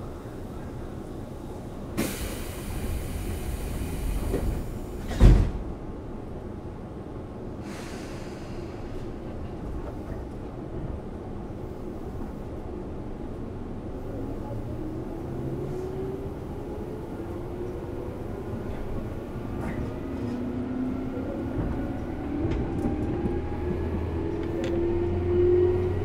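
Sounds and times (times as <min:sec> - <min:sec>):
low hum of standing train: 0:00.0 - 0:26.0
air hiss of sliding doors: 0:02.0 - 0:05.6, 0:07.6 - 0:09.1.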